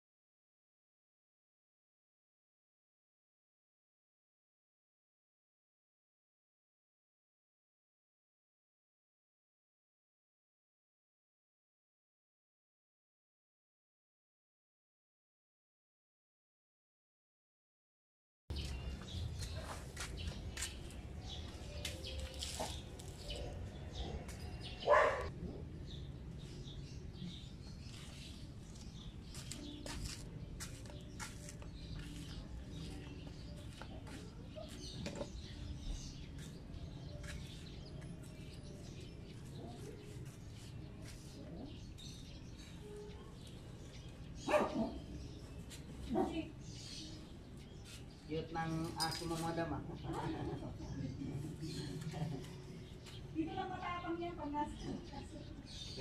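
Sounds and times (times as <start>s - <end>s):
low street background: 18.5s - 56.0s
dog barking: 23.3s - 25.3s, 44.4s - 45.2s.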